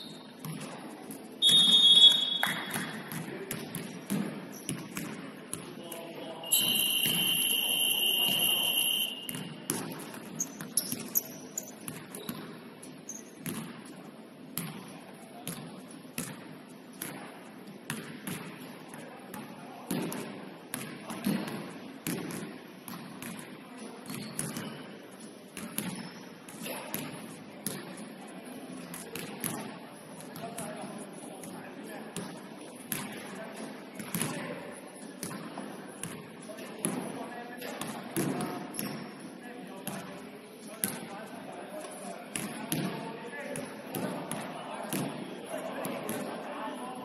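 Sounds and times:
scoreboard buzzer: 6.5s - 9.3s.

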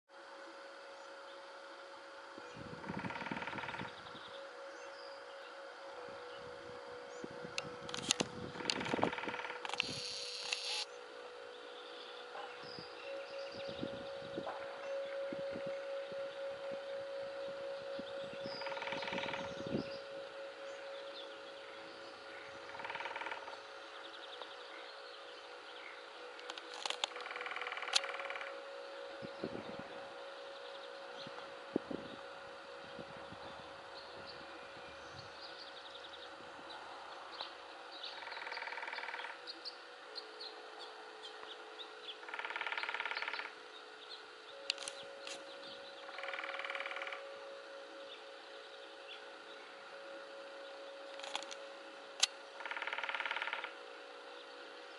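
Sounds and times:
woodpecker drumming on tree: 2.8s - 4.3s, 8.0s - 10.9s, 13.1s - 24.6s, 26.4s - 28.7s, 38.1s - 39.4s, 42.2s - 43.6s, 44.7s - 48.1s, 52.2s - 53.8s
woodpecker drumming on trunk: 22.6s - 23.6s, 26.4s - 28.5s, 42.2s - 43.6s, 46.1s - 47.3s, 52.6s - 53.8s.

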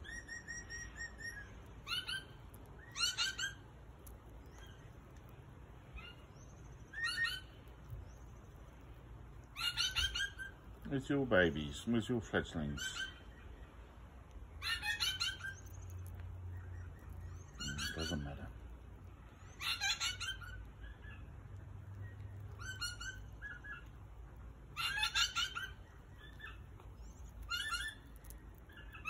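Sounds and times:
parrot calling: 0.0s - 3.7s, 5.9s - 7.6s, 9.4s - 10.9s, 12.5s - 13.6s, 14.5s - 18.5s, 19.3s - 29.0s.

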